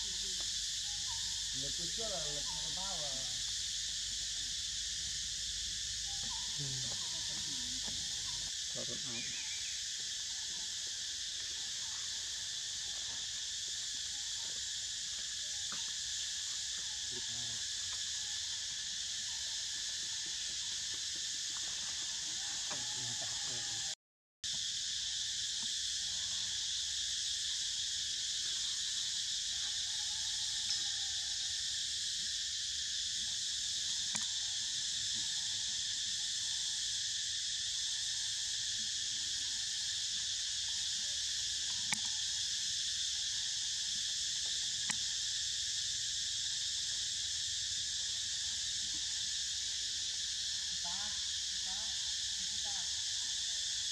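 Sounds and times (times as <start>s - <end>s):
insects buzzing: 0.0s - 53.9s.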